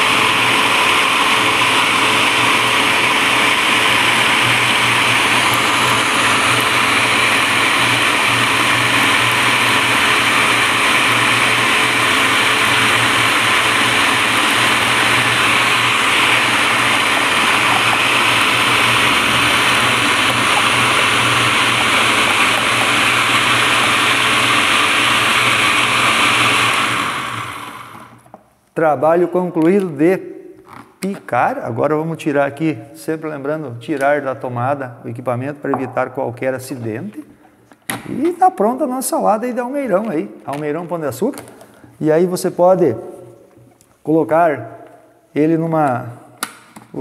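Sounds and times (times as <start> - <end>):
food processor motor running: 0.0 - 28.3.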